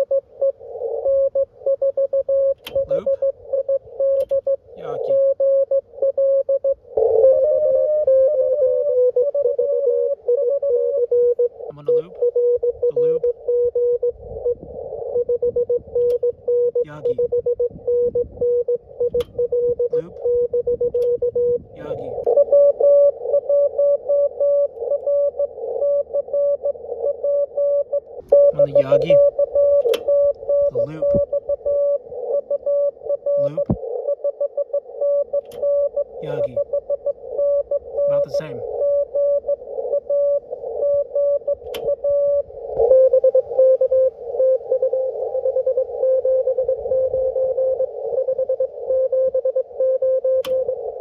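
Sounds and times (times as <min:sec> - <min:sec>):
morse code beeps: 0:00.0 - 0:51.0
radio hiss: 0:04.7 - 0:05.3, 0:28.2 - 0:29.4, 0:30.6 - 0:31.4, 0:33.3 - 0:34.1, 0:36.0 - 0:36.7, 0:37.8 - 0:40.9
radio band hiss: 0:28.3 - 0:29.3, 0:30.7 - 0:31.3, 0:36.1 - 0:36.6, 0:38.0 - 0:38.8
sharp click: 0:29.8 - 0:30.1, 0:41.6 - 0:41.9.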